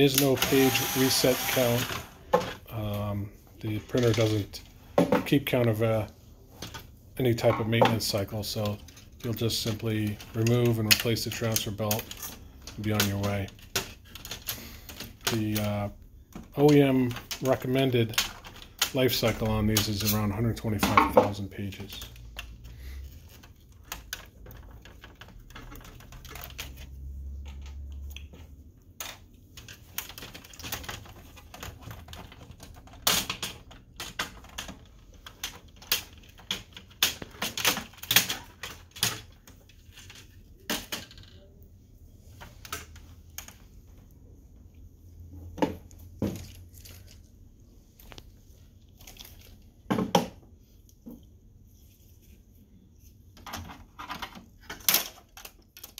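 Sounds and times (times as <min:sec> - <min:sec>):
plastic and metal parts clicking: 0:06.6 - 0:41.6, 0:53.4 - 0:55.9.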